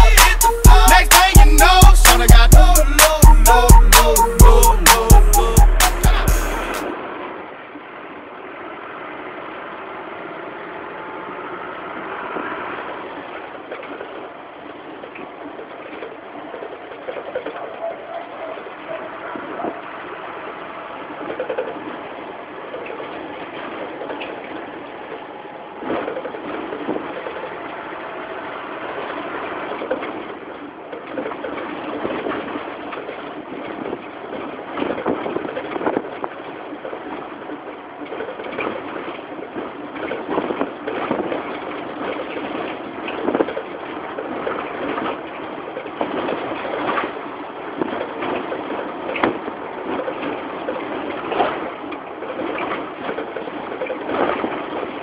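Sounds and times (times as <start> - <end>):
minibus engine running: 0.0 - 31.0
road noise: 0.0 - 55.0.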